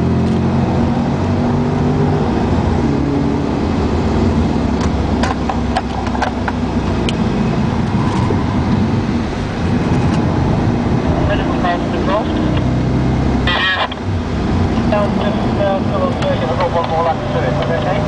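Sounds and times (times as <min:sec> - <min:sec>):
car engine and road noise: 0:00.0 - 0:18.0.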